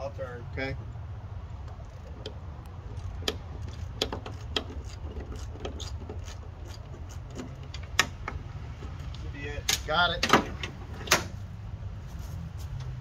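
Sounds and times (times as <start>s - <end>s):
steady low rumble: 0.0s - 13.0s
wrench clicking and scraping: 1.7s - 11.3s.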